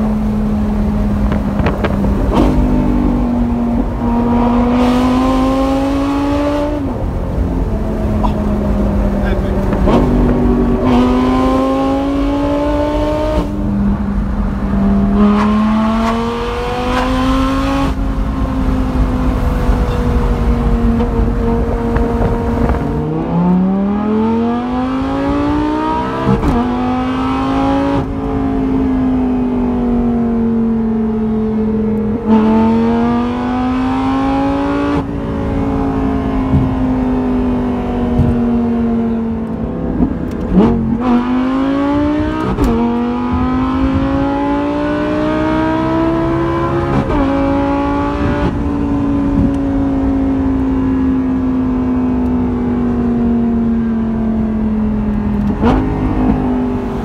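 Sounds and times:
sports car engine revving: 0.0 - 57.0
exhaust cracks: 7.0 - 10.9.

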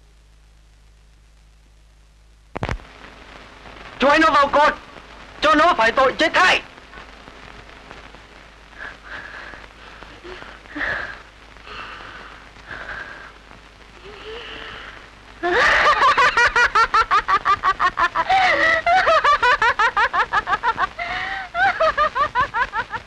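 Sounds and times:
person laughing loudly: 15.4 - 23.0.

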